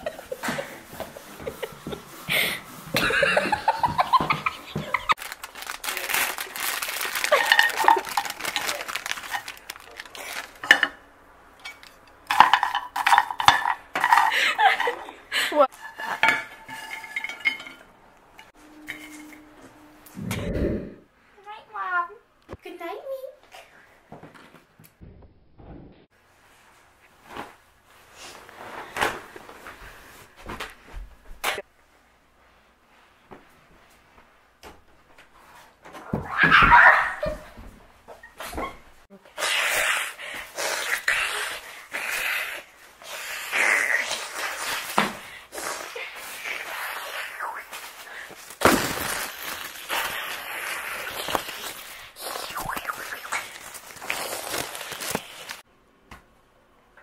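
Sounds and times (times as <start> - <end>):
high giggling voices: 0.0 - 5.2
popcorn crackling in a frying pan: 5.0 - 10.7, 46.0 - 55.6.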